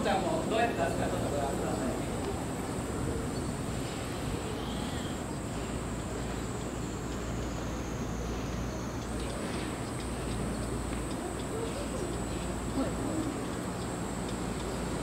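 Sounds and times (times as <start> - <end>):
cicadas droning: 0.0 - 15.0.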